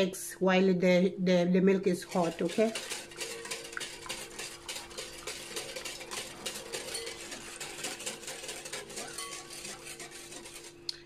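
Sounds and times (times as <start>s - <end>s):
whisk clinking against glass bowl: 2.0s - 10.7s.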